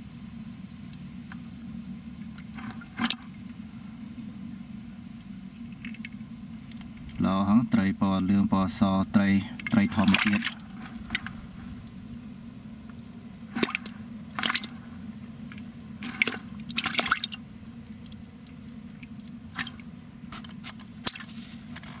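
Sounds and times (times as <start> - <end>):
low steady hum: 0.0 - 22.0
fish flopping in a bucket: 9.5 - 22.0.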